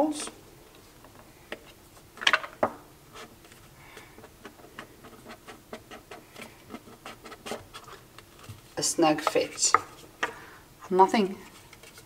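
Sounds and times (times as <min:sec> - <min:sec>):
fingers scraping cardboard: 0:04.2 - 0:08.0.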